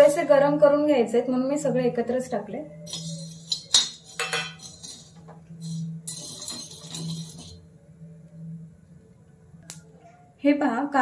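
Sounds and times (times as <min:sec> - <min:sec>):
faint steady hum: 0:00.0 - 0:11.0
spoon scraping on a pan: 0:02.8 - 0:07.7.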